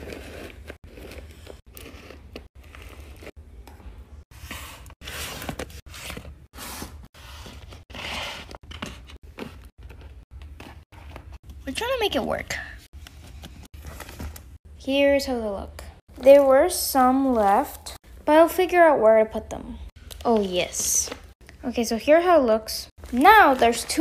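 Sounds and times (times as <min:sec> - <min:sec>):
paper crinkling and rustling: 0:13.0 - 0:14.6, 0:23.0 - 0:24.0.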